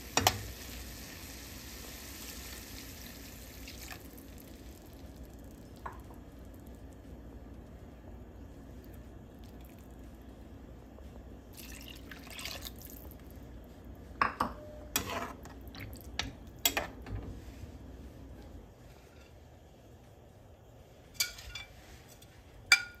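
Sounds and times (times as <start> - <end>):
water pouring into a pan: 0.6 - 5.5, 11.5 - 13.0
metal spatula stirring: 14.9 - 15.5.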